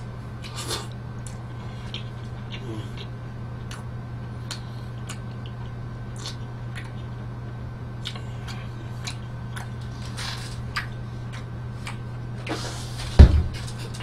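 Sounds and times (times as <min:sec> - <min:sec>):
steady low hum: 0:00.0 - 0:14.0
person chewing food: 0:00.4 - 0:07.2, 0:08.0 - 0:12.1.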